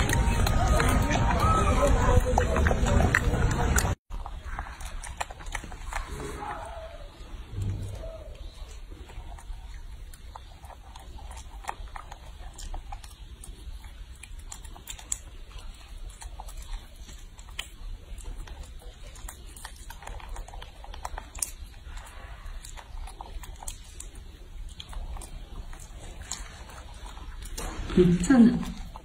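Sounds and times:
monkey chewing wet clicks: 0.0s - 29.0s.

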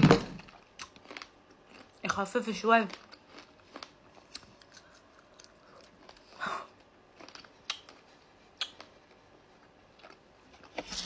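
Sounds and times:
person chewing with wet smacks: 2.9s - 10.8s.

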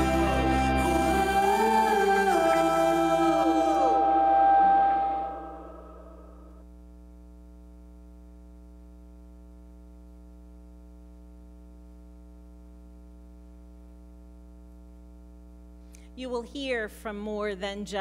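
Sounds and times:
music: 0.0s - 6.2s
low electrical hum: 0.0s - 18.0s.

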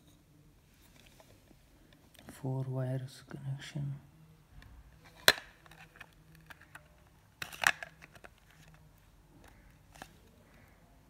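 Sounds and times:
plastic case clattering: 5.0s - 8.8s
plastic case handling clicks: 5.0s - 8.8s.

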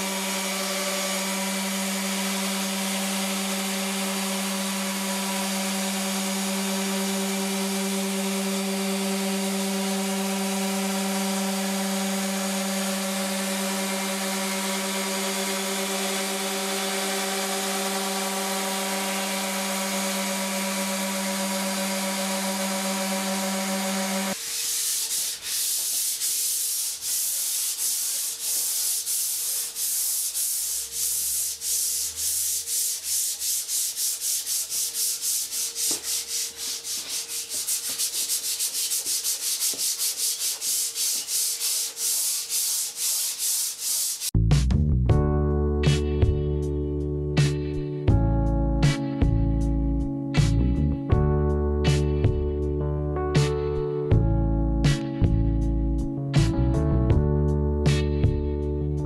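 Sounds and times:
electric sander running: 0.0s - 44.3s
hand sanding wood: 0.0s - 44.4s.

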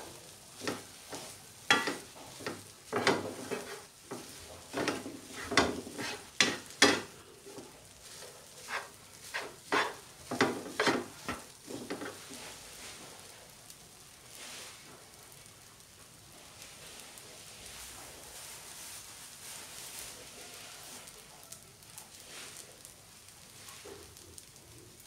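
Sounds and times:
spatula scraping frying pan: 0.0s - 13.1s
faint frying sizzle: 0.0s - 25.0s.

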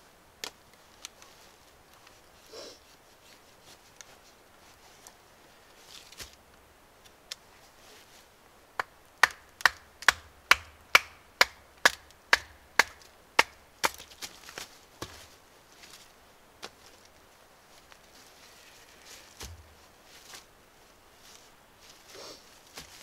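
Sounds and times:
small wood cracks: 9.2s - 15.3s.

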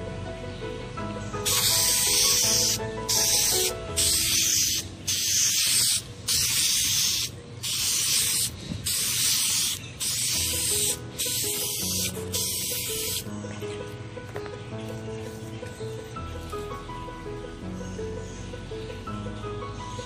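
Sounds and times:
aerosol spray can hissing: 1.4s - 13.3s.

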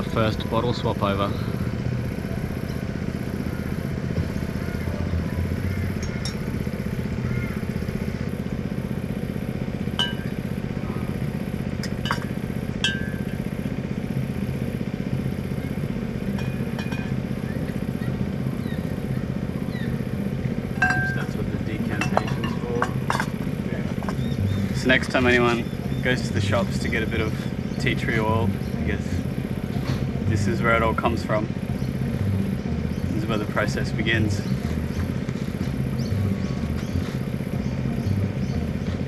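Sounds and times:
motor drone: 0.0s - 39.0s
glass clinks: 10.0s - 10.3s, 20.8s - 21.4s.

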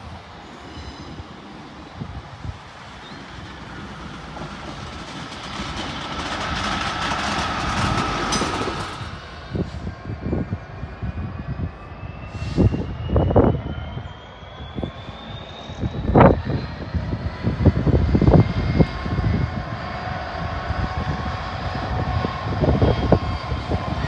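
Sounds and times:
train whine rising: 0.0s - 24.0s
train low thumps: 2.0s - 10.0s.

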